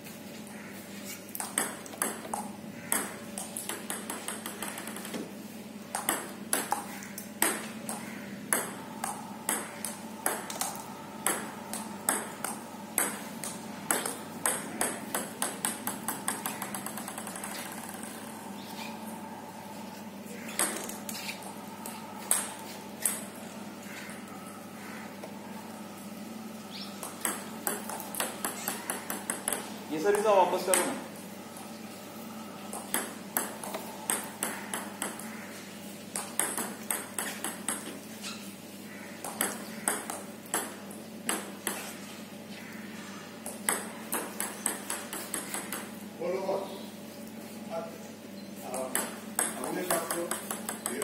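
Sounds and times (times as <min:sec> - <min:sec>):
steady low hum: 0:00.0 - 0:51.0
table tennis ball clicking: 0:05.9 - 0:18.3, 0:48.9 - 0:51.0.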